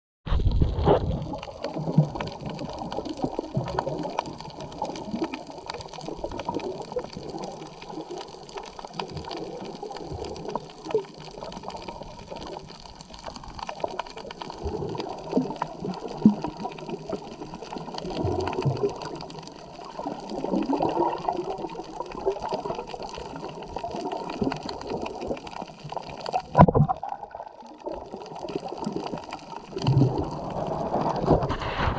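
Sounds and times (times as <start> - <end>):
muffled underwater sloshing: 0.7 - 31.9.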